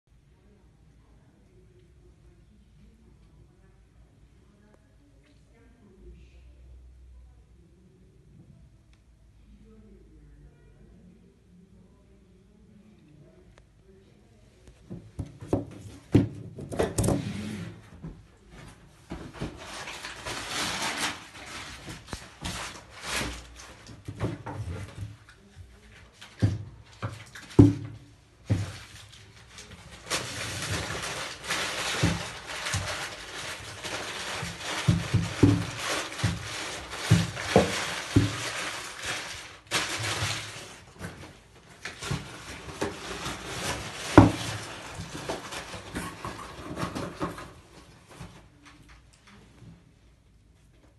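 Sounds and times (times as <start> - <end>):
rustling and rubbing on paper: 18.6 - 48.5.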